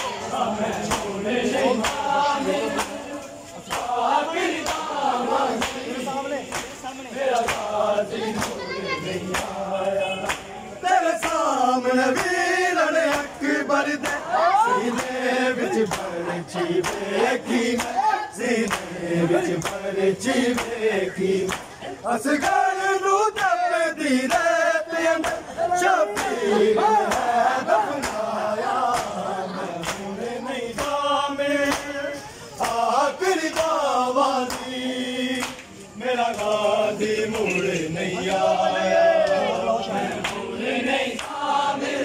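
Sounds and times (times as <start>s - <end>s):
men chanting in chorus: 0.0s - 42.0s
hands slapping bare chests: 0.9s - 1.1s, 1.8s - 2.1s, 2.8s - 3.0s, 3.7s - 4.0s, 4.6s - 5.9s, 6.5s - 7.7s, 9.3s - 9.6s, 11.2s - 11.5s, 15.8s - 16.2s, 16.8s - 17.1s, 18.6s - 19.8s, 27.1s - 27.3s, 28.0s - 28.3s, 28.9s - 29.2s, 29.8s - 30.1s.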